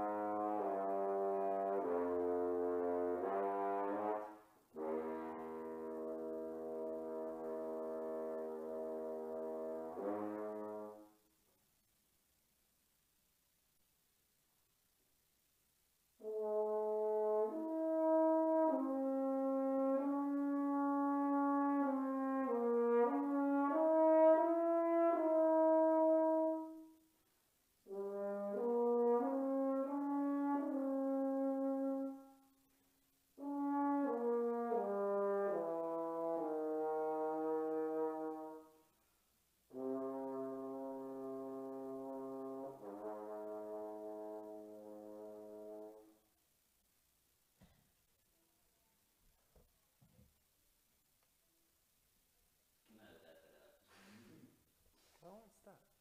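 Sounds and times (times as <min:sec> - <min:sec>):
french horn playing: 0:00.0 - 0:11.3, 0:16.2 - 0:27.0, 0:27.8 - 0:32.7, 0:33.4 - 0:39.0, 0:39.7 - 0:46.3.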